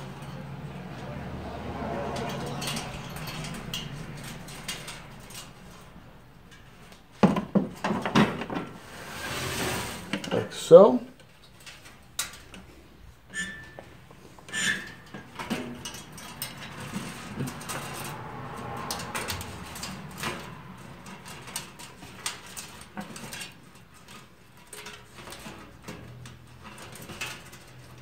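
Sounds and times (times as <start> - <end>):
plastic and wire knocking on metal: 7.2 - 8.7.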